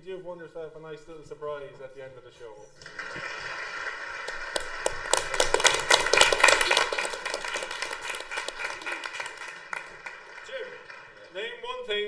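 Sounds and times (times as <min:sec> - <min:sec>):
small group applauding: 0:02.8 - 0:11.8.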